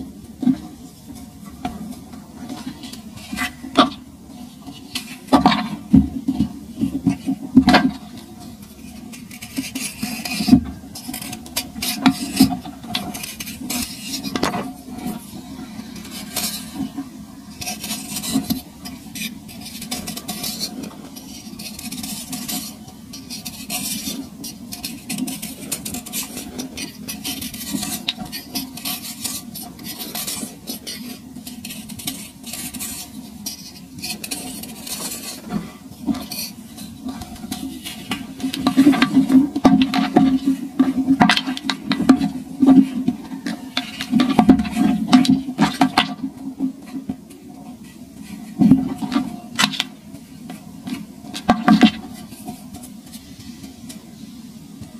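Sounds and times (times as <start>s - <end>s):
knife blade scraping sand: 17.6s - 35.6s.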